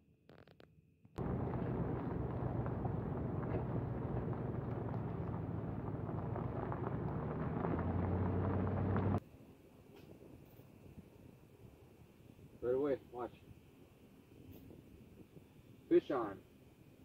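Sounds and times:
engine and tyre rumble: 1.2s - 9.2s
gravel crackling: 1.2s - 9.2s.

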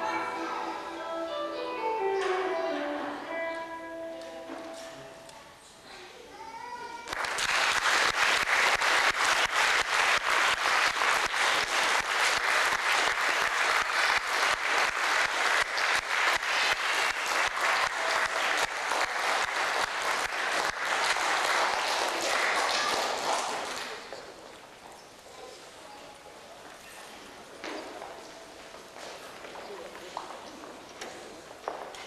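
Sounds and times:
audience applauding: 7.0s - 24.4s.

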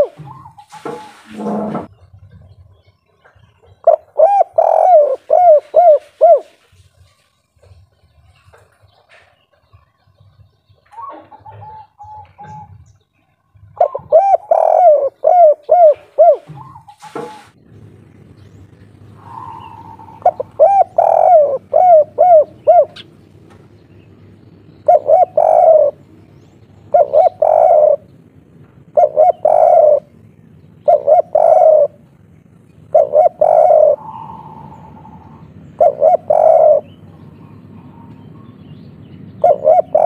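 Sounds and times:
dove cooing: 0.0s - 1.9s, 3.3s - 7.0s, 10.8s - 12.9s, 13.6s - 17.6s, 18.8s - 23.2s, 24.7s - 28.1s, 28.8s - 38.6s, 39.3s - 40.0s.

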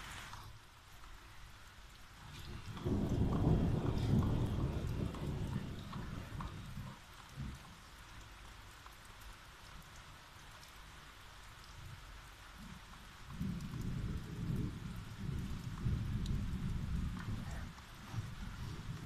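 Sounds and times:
rain falling: 0.0s - 19.0s
thunder rumbling: 2.3s - 7.7s, 12.7s - 19.0s.

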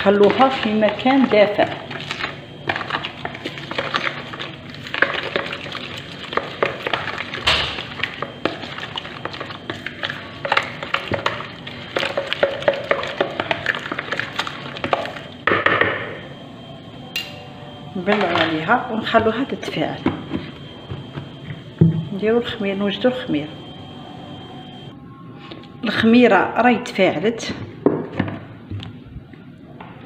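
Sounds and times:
wet stirring by hand: 0.0s - 16.4s, 17.9s - 24.9s.

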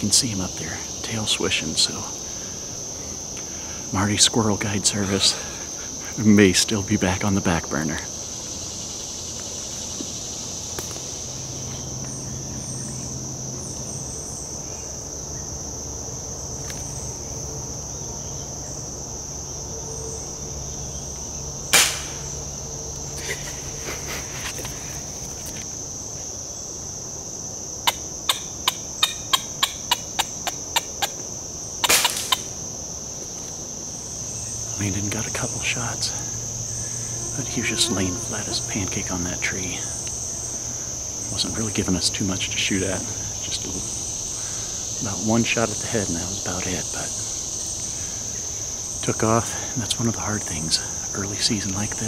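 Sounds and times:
crickets chirping: 0.0s - 52.0s
sharp crack: 21.7s - 22.3s, 31.8s - 32.6s.

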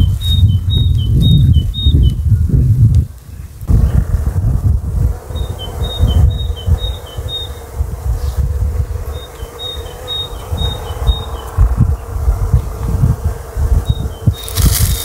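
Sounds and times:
small bird singing: 0.0s - 2.6s, 5.3s - 7.8s, 9.1s - 12.3s, 13.8s - 15.0s
low rumble: 0.0s - 9.2s
bees buzzing: 3.4s - 15.0s.

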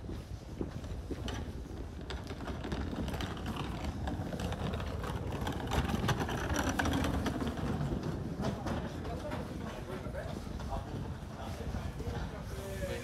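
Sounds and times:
suitcase wheels rattling on stone: 1.2s - 9.1s.

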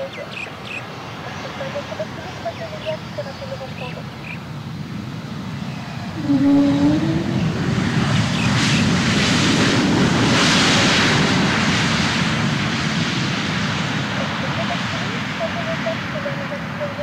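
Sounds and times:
jet engines roaring: 0.0s - 17.0s
brief low tone: 6.2s - 7.6s.

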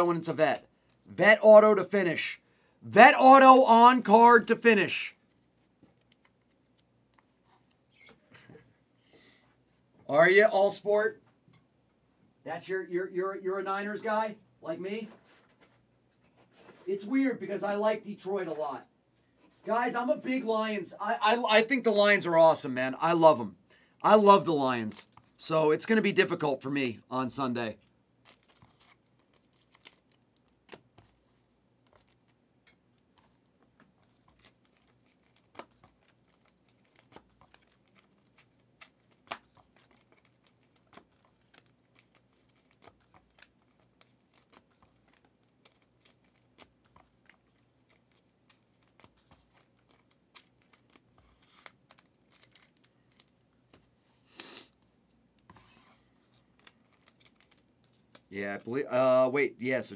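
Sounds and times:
trading cards clicking and rustling: 28.2s - 53.9s, 56.3s - 58.8s.

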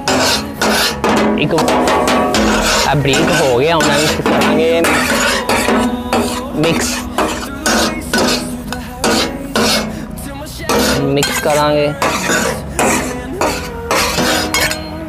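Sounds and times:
metal spatulas clattering on griddle: 0.0s - 10.0s, 10.7s - 15.0s.

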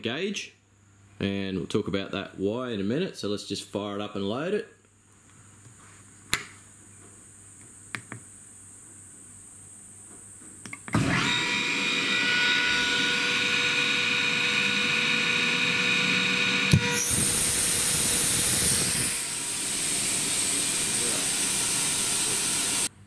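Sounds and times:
air compressor running whine: 10.9s - 22.9s
compressor clunk: 16.7s - 22.6s
compressed air hissing: 16.7s - 22.9s.

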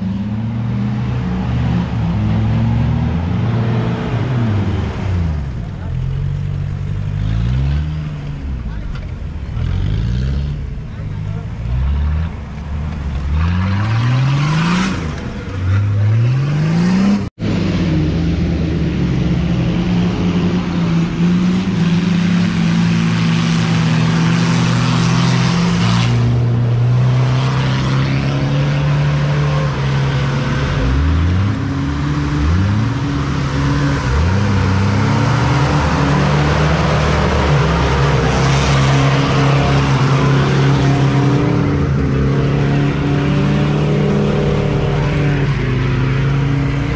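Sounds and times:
off-road engines revving hard: 0.0s - 46.9s.

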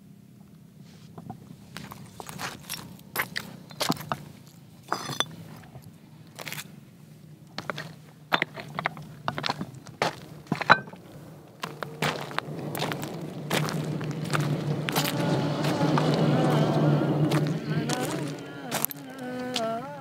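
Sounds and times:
low steady hum: 0.0s - 20.0s
footsteps crunching on stony ground: 1.1s - 20.0s
short ringing clink: 4.9s - 5.4s
stone blocks knocking and scraping: 4.9s - 5.4s, 8.3s - 9.6s, 10.5s - 11.0s.

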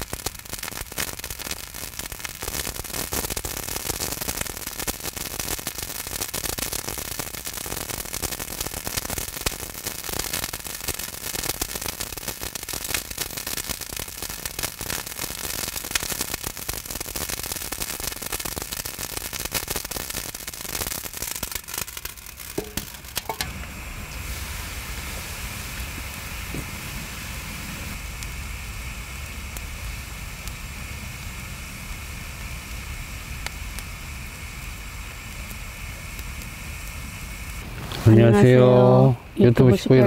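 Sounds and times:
salt crackling and shells sizzling: 0.0s - 38.5s
metal lid ringing: 22.6s - 23.7s.

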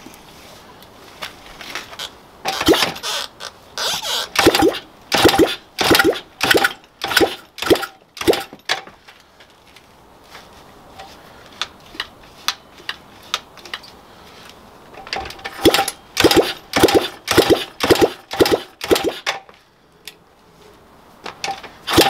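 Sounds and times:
engine kick-start strokes: 4.4s - 8.6s, 15.5s - 19.3s.

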